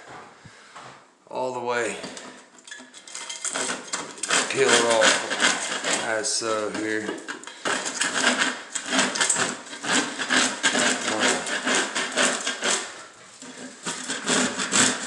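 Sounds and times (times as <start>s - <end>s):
scraper knife rasping paint: 3.5s - 15.0s.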